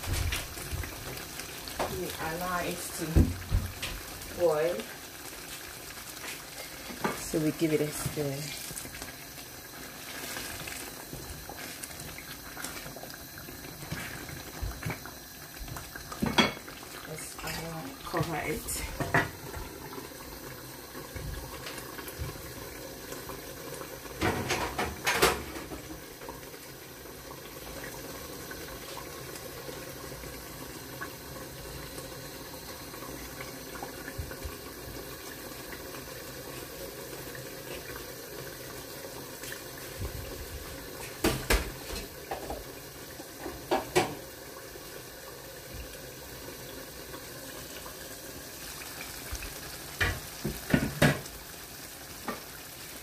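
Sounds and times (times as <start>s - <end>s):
stew bubbling in a pan: 0.0s - 53.0s.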